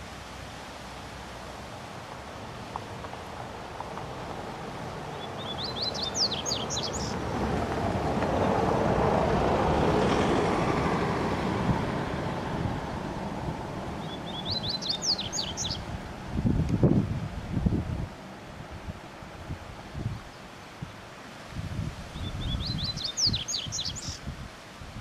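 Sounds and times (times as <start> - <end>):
rushing background noise: 0.0 - 24.6
songbird singing: 2.6 - 7.2, 12.4 - 16.2, 22.0 - 24.3.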